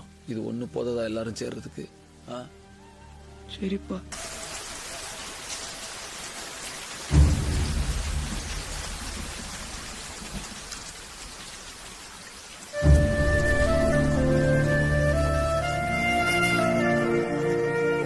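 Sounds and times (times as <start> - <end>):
heavy rain: 0.0 - 18.0
thunder clap: 7.1 - 10.7.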